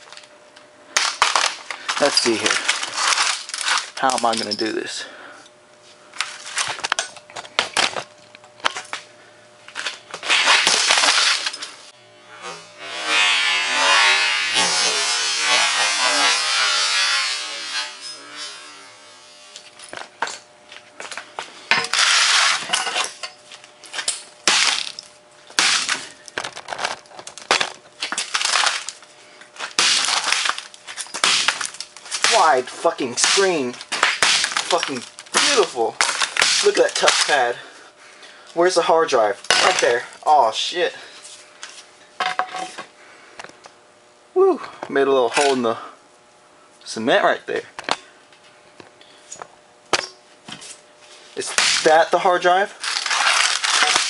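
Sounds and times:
screen cracking and crunching: 0:01.0 - 0:04.5, 0:25.6 - 0:37.5, 0:51.4 - 0:54.0.

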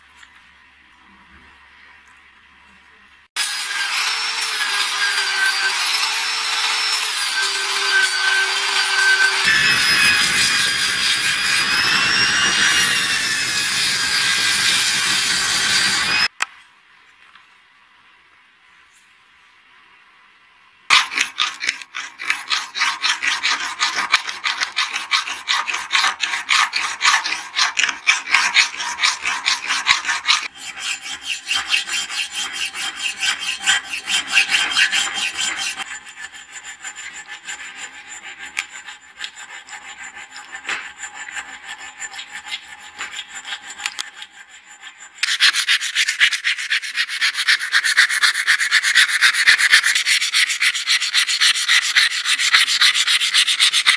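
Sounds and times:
file scraping brass: 0:03.4 - 0:16.3, 0:20.9 - 0:53.9
sandpaper rubbing on brass: 0:22.0 - 0:53.9.

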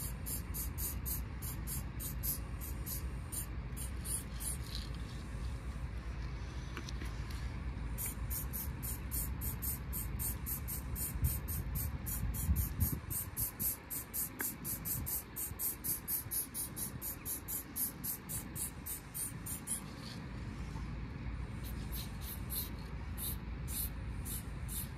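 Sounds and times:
spray paint can short hisses: 0:00.0 - 0:04.7, 0:08.0 - 0:19.8, 0:21.6 - 0:24.9.

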